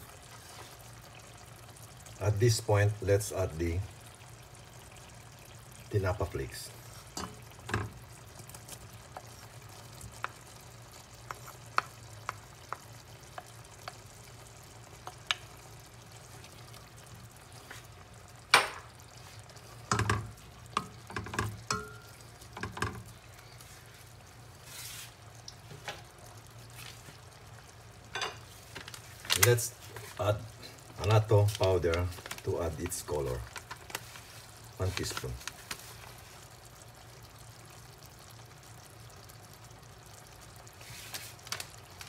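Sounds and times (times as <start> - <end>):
faint simmering: 0.0 - 42.0
spoon knocking against pot: 19.9 - 23.0.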